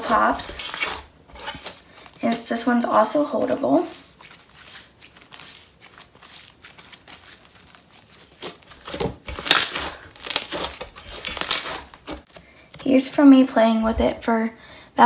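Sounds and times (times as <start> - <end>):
slime crackling by hand: 2.2 - 13.2.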